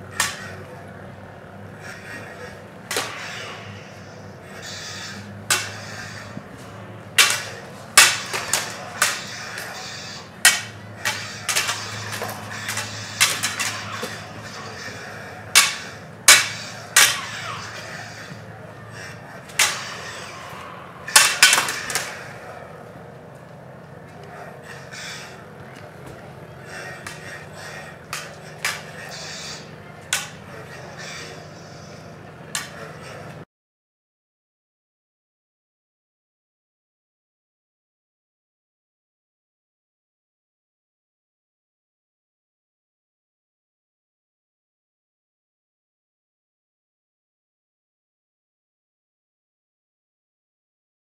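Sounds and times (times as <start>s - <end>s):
lightsaber blades clacking: 0.1s - 0.8s, 1.8s - 22.8s, 23.4s - 25.5s, 26.2s - 33.4s.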